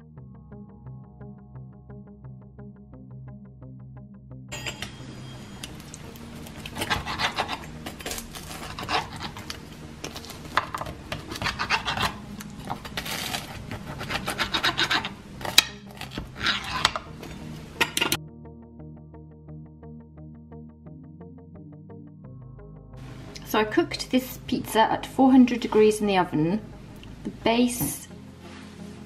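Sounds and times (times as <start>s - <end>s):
pizza cutter rasping through crust: 6.5s - 17.3s.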